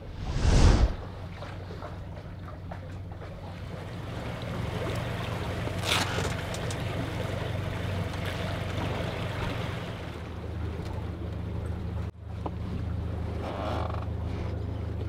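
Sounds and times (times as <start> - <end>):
wind noise: 0.0 - 1.1
water noise: 0.0 - 12.0
outboard motor running: 1.2 - 15.0.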